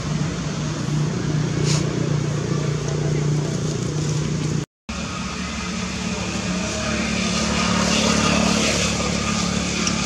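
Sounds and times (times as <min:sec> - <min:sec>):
motor engine droning: 0:00.0 - 0:10.0.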